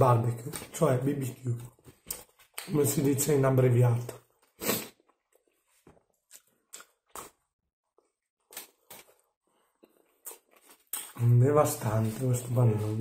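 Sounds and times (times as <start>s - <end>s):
person chewing: 4.2s - 11.2s.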